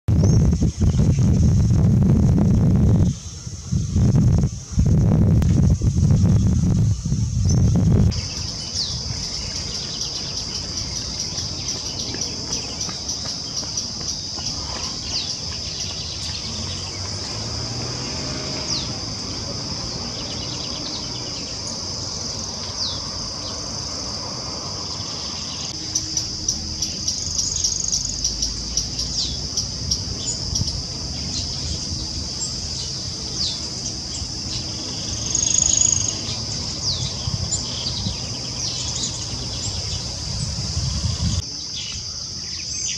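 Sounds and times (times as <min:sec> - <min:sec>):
high-pitched insect drone: 0:00.2 - 0:42.9.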